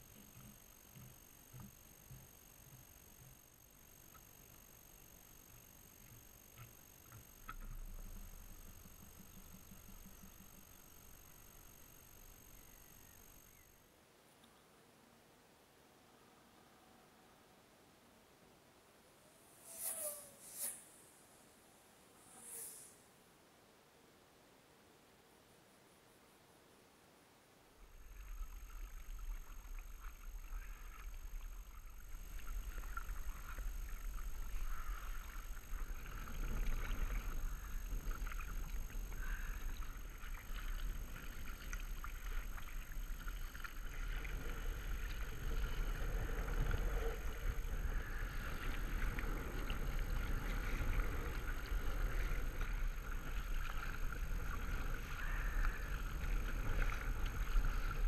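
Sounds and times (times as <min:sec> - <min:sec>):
steady low rumble: 0:00.0 - 0:13.6
paddle blades splashing: 0:27.9 - 0:58.0
water moving against hull: 0:27.9 - 0:58.0.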